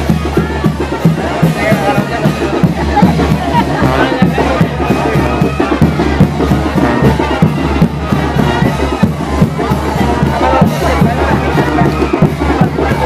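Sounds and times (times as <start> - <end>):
brass band playing: 0.0 - 13.0
driving drum beat: 0.0 - 13.0.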